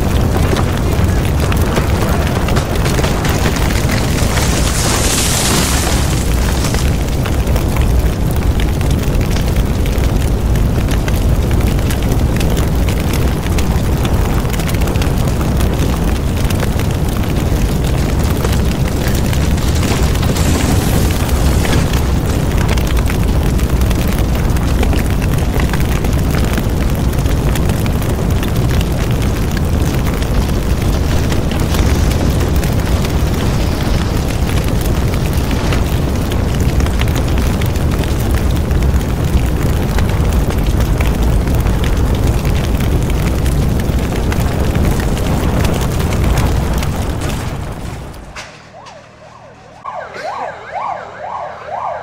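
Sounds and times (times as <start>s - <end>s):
fire roaring and crackling: 0.0s - 52.0s.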